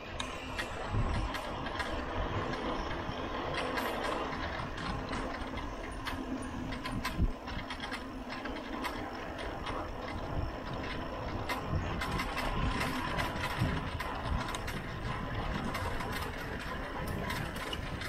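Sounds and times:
wind: 0:00.0 - 0:18.0
bicycle freehub ratcheting clicks: 0:00.2 - 0:18.0.

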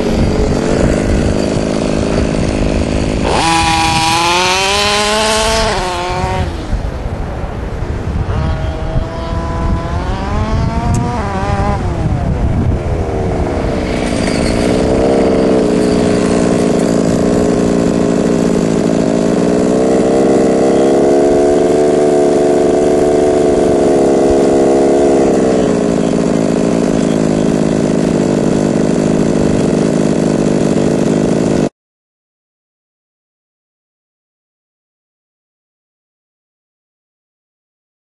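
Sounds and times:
small engine idling: 0:00.0 - 0:06.9, 0:08.4 - 0:31.7.

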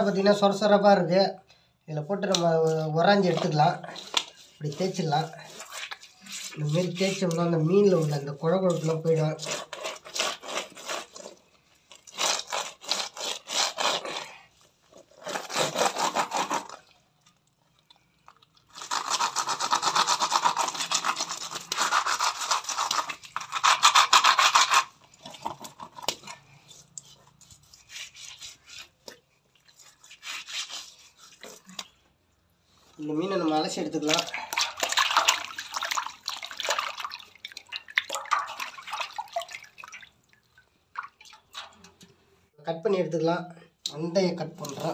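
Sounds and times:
fish scraping on rough floor: 0:03.3 - 0:11.5, 0:12.1 - 0:16.9.

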